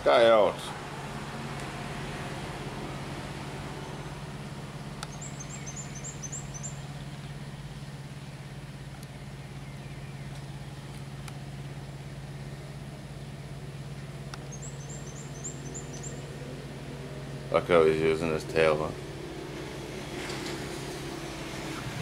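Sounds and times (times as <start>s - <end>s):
low machine hum: 0.0s - 22.0s
high thin bird chirps: 5.0s - 7.1s, 14.4s - 16.3s.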